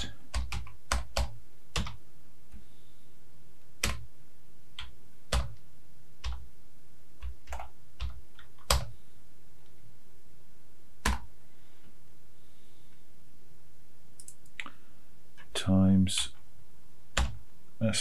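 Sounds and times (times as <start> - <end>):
computer keyboard keystrokes: 0.3 - 2.0, 3.8 - 4.1, 4.8 - 5.6, 6.2 - 6.4, 7.2 - 8.9, 11.0 - 11.3, 14.2 - 14.6.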